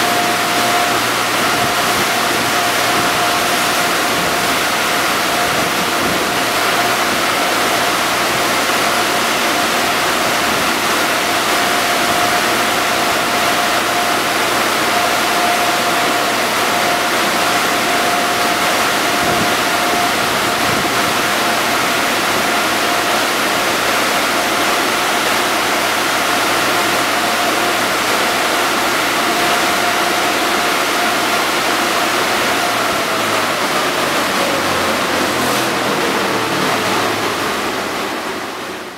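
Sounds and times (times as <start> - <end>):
air dryer blowers rushing: 0.0 - 38.9
constant whining tone: 0.0 - 38.9.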